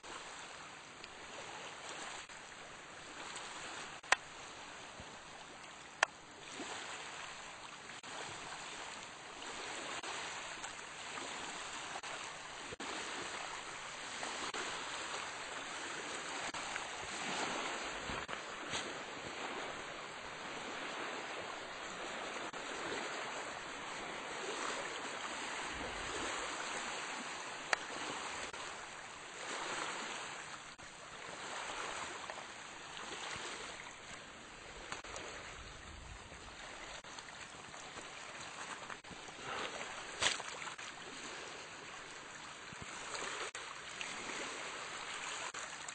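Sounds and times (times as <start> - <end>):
waves washing over gravel: 8.0 - 33.8, 34.4 - 45.9.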